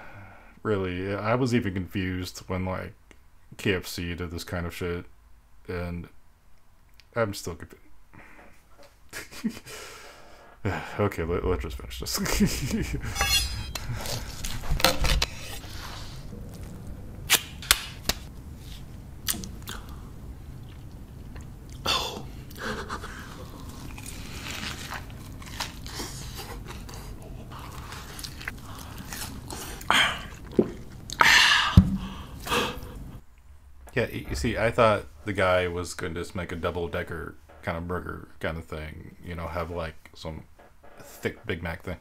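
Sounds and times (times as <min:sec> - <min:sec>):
person chewing crunchy food: 0:13.8 - 0:31.2.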